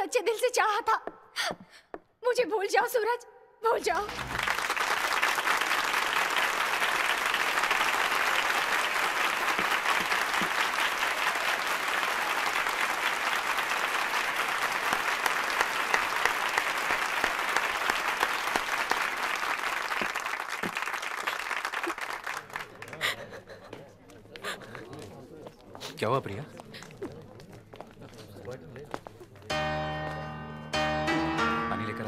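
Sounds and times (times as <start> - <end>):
large audience applauding: 3.9 - 23.6.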